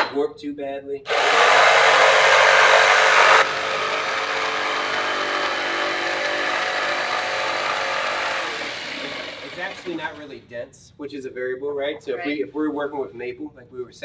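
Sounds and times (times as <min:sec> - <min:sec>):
jigsaw cutting wood: 0:01.1 - 0:10.4.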